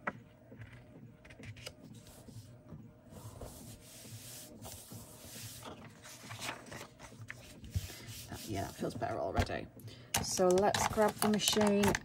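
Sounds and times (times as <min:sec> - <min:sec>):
paper rubbing on paper: 0:03.1 - 0:09.0.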